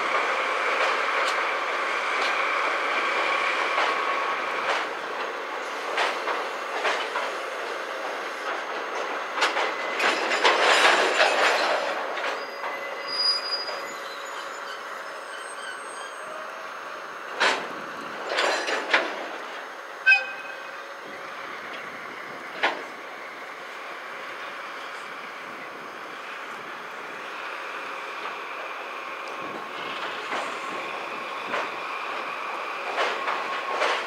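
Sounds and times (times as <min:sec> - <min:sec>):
wheels clicking over rail joints: 0:00.1 - 0:12.8, 0:17.3 - 0:20.5, 0:21.6 - 0:23.2, 0:25.5 - 0:34.0
train wheels squealing: 0:08.3 - 0:17.0, 0:20.0 - 0:21.7.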